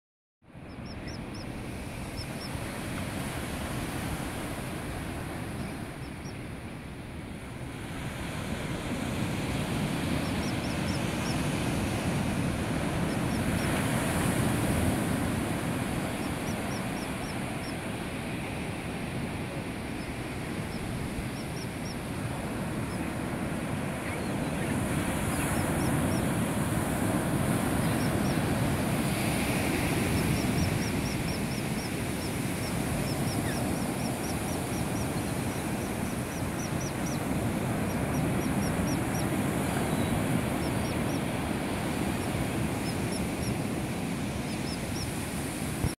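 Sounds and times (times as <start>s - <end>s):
birds chirping: 0.6s - 2.6s, 29.4s - 43.7s
ocean surf breaking: 7.4s - 46.0s.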